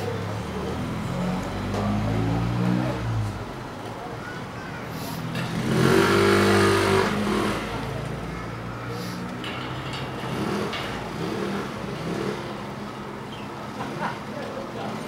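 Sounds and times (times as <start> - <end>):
background traffic: 0.0 - 15.0
vehicle engine accelerating past: 0.7 - 3.4, 5.4 - 8.0.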